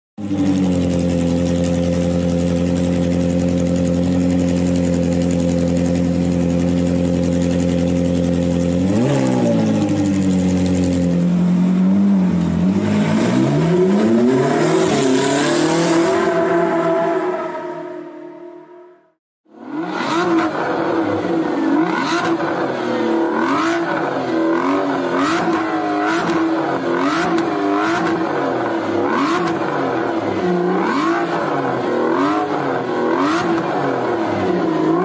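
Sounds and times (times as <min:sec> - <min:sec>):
car engine running: 0:00.2 - 0:17.1
engine revving up accelerating: 0:12.5 - 0:18.8, 0:19.6 - 0:22.6, 0:23.3 - 0:28.2, 0:29.0 - 0:29.6, 0:30.8 - 0:35.0.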